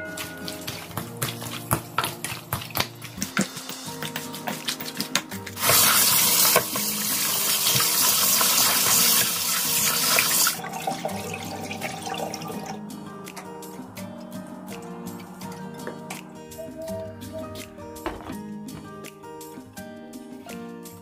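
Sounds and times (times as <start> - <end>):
tap running into metal bowl: 0.1 - 12.8.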